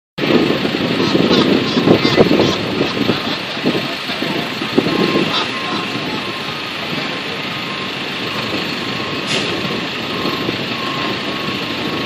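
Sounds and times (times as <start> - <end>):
truck engine running: 0.2 - 12.0
reversing alarm beeping: 4.3 - 12.0.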